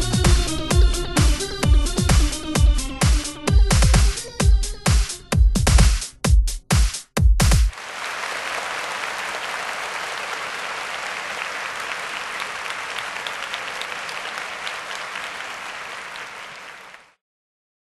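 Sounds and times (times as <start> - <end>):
crowd applause: 7.7 - 17.2.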